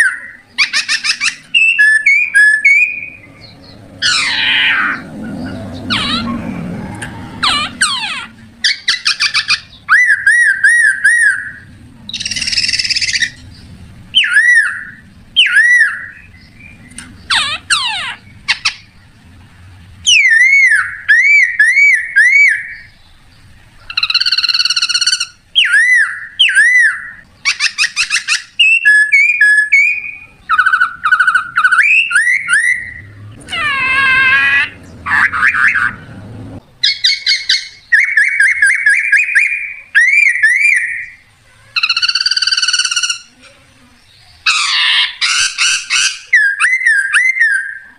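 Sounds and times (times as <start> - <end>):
leaf whistle imitating bird calls: 20.1 - 23.0, 23.9 - 33.1, 36.8 - 41.2.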